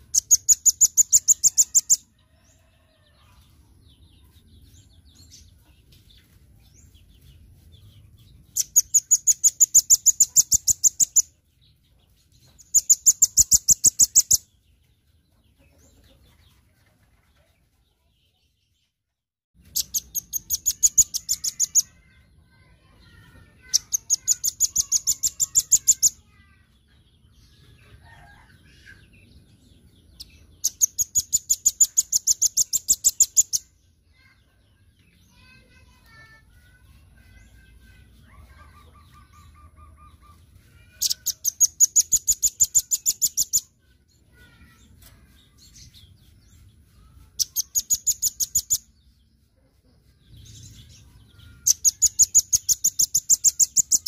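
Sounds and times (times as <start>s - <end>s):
bird singing rapid high trills: 8.5s - 11.3s, 19.6s - 26.4s, 44.4s - 49.0s, 50.4s - 54.0s.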